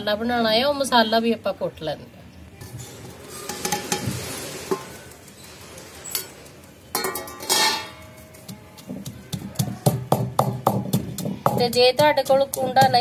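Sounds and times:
metal plate clanging on floor: 2.8s - 5.1s, 6.0s - 8.2s.

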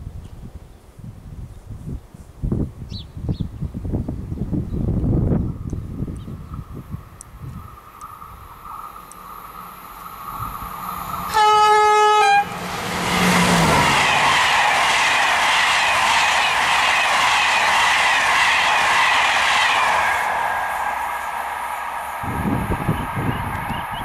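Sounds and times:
train wheels rushing and rumbling: 4.5s - 24.0s
locomotive hum: 5.6s - 24.0s
train horn blast: 11.2s - 14.5s.

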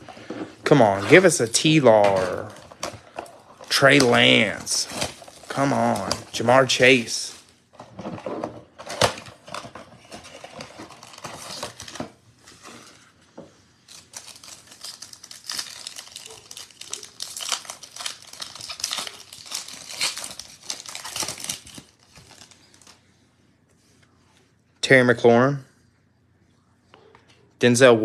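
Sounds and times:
foil packs crinkling: 0.7s - 7.6s, 8.9s - 12.0s, 13.9s - 23.0s
foil pack tearing: 14.1s - 22.5s.

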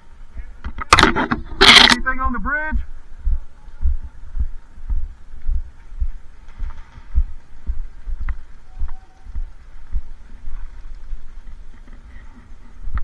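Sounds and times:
low rhythmic thuds: 2.8s - 13.0s.

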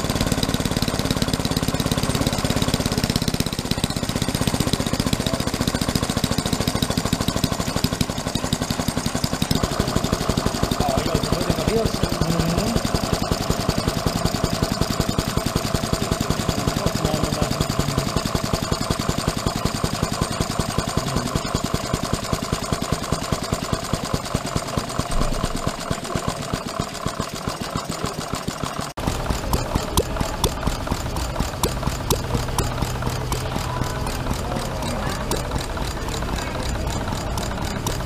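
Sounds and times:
small stationary engine running: 0.0s - 38.0s.

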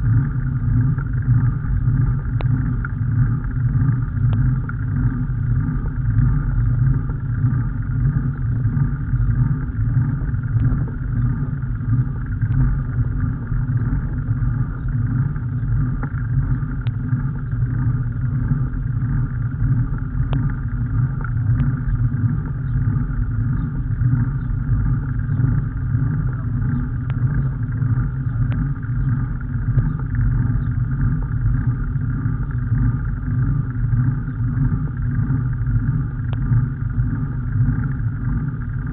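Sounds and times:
faint clicks: 2.4s - 3.0s, 20.2s - 20.6s.

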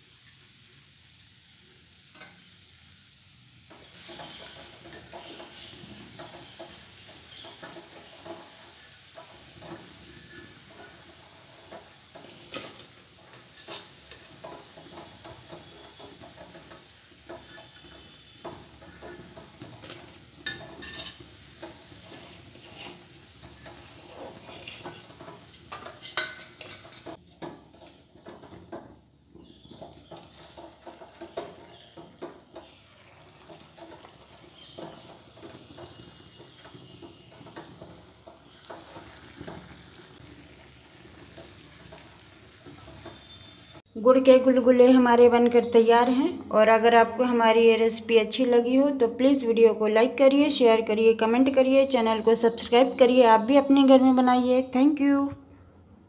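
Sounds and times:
fritters sizzling in hot oil: 0.0s - 43.9s
wire skimmer clinking on pan: 11.7s - 21.8s, 22.8s - 40.0s, 41.1s - 43.8s.

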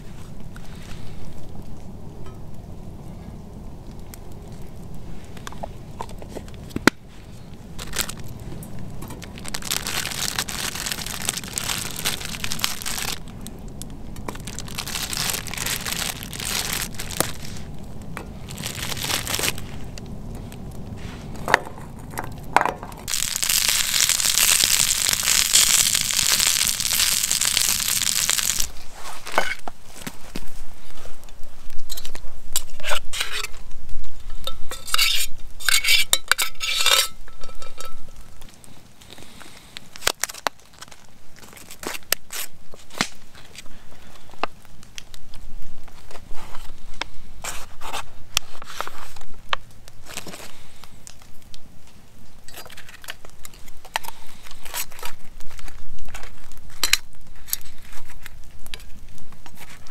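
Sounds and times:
low rumble: 0.0s - 29.2s
campfire crackling and hissing: 0.0s - 59.9s.

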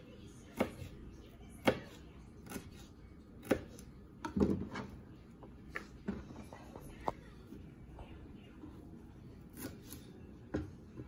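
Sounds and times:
knife chopping on plastic board: 0.5s - 0.9s, 1.6s - 4.8s.

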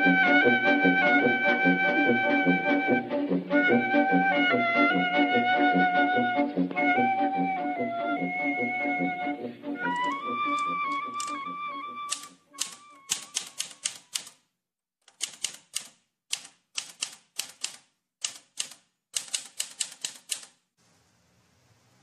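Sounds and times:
manual typewriter typing: 9.9s - 11.4s, 12.1s - 14.4s, 15.0s - 20.6s.

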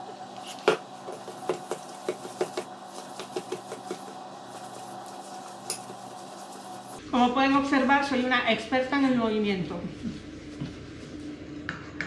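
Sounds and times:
spatula scraping mixing bowl: 0.3s - 7.0s.

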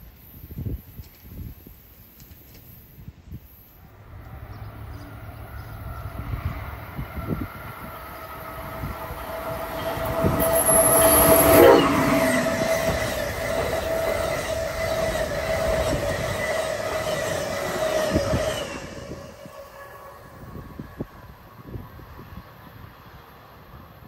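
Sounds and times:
train passing at speed: 3.3s - 24.0s
coaches whining tone: 4.0s - 21.1s.

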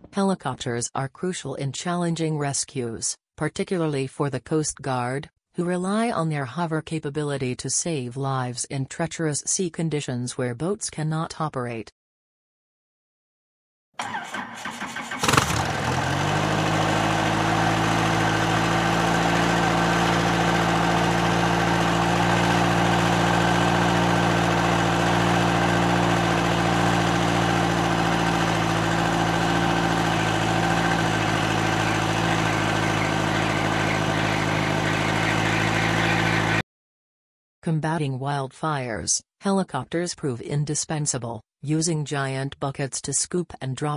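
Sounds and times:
helicopter hovering: 15.1s - 36.6s.

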